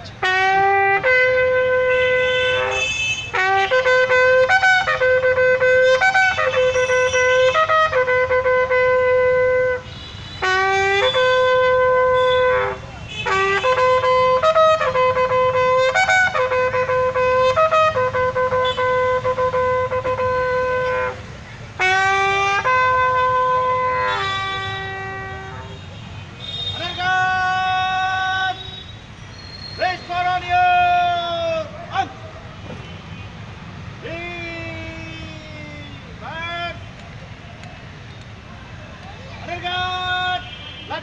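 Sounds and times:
bugle playing long notes: 0:00.2 - 0:21.2, 0:21.8 - 0:25.8.

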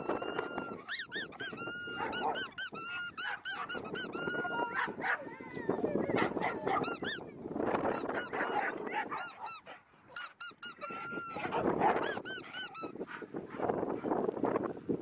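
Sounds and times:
squeaky dog toy squeaking: 0:00.0 - 0:04.8, 0:06.8 - 0:07.3, 0:07.9 - 0:13.0.

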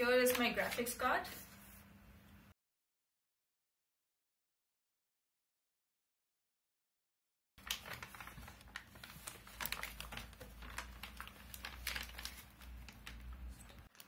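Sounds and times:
plastic bag crinkling: 0:07.6 - 0:14.0.

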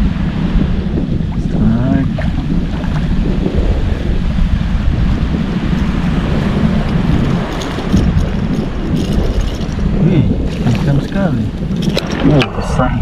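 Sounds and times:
wind buffeting microphone: 0:00.0 - 0:13.0
light water splashes: 0:05.8 - 0:12.6.

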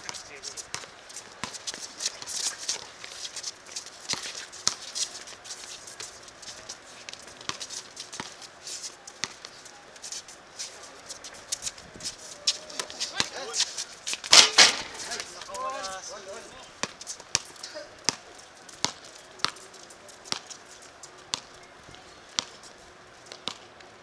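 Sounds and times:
shoes shuffling on a court: 0:00.0 - 0:24.0
basketball bouncing: 0:23.3 - 0:23.6.

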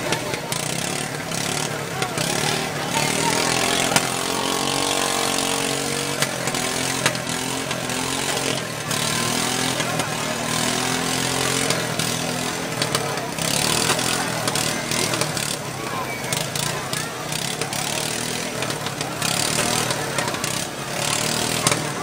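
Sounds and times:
riding lawn mower engines racing: 0:00.0 - 0:22.0.

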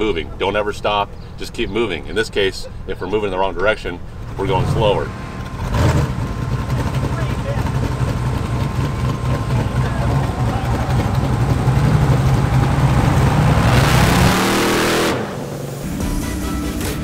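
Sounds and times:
race car engine revving: 0:04.2 - 0:16.0.

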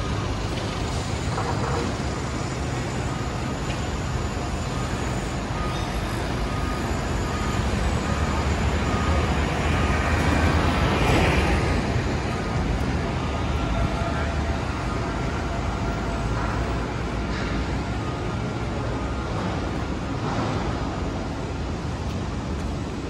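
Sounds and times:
city traffic rumble: 0:00.0 - 0:23.0.

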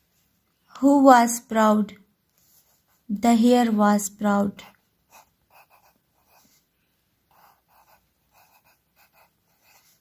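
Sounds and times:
pencil scratching on paper: 0:02.3 - 0:03.7, 0:04.7 - 0:10.0.

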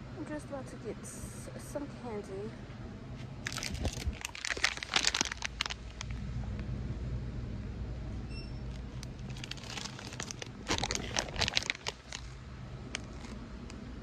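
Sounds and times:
low hum: 0:00.0 - 0:14.0
plastic crinkling: 0:03.4 - 0:06.2, 0:08.7 - 0:13.4.

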